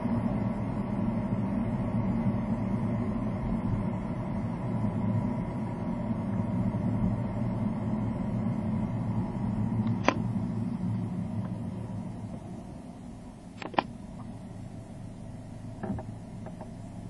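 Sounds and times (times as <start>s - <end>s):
car cabin road noise: 0.2s - 17.0s
sharp click: 9.9s - 10.2s, 13.6s - 13.9s.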